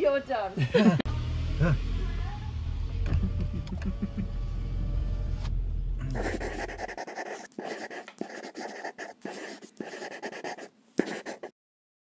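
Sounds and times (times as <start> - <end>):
pen scratching on paper: 6.1 - 11.5.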